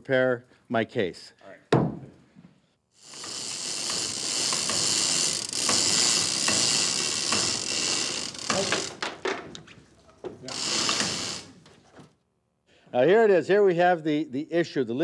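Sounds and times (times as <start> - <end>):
chain hoist ratcheting: 3.0 - 9.4, 10.4 - 11.6.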